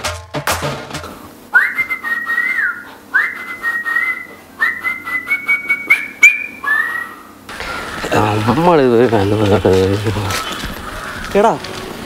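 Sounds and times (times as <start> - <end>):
person whistling a tune: 1.6 - 7.2.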